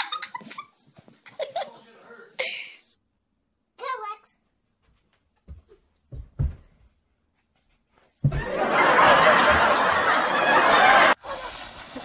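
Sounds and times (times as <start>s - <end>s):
loud laughter: 8.4s - 11.6s.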